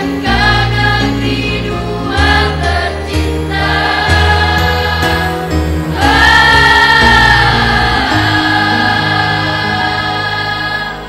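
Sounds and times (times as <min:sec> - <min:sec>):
choir singing in parts: 0:00.0 - 0:11.0.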